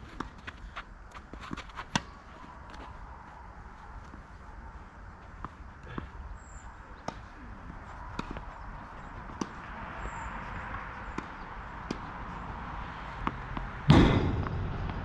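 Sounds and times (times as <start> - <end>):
tennis ball bounces: 8.1 - 9.7, 11.0 - 12.4, 13.2 - 15.0
racket strikes: 13.9 - 15.0.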